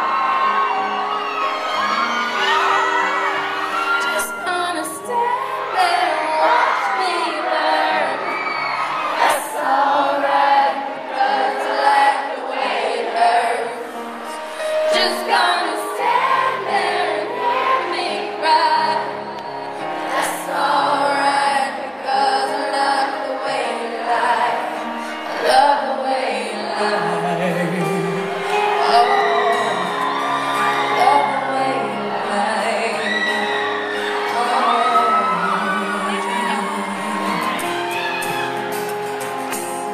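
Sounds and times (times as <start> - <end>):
crowd whooping and cheering: 0.0 - 39.9
woman singing into microphone: 4.0 - 8.5, 9.2 - 27.3, 28.5 - 38.2
strummed acoustic guitars: 26.4 - 39.9.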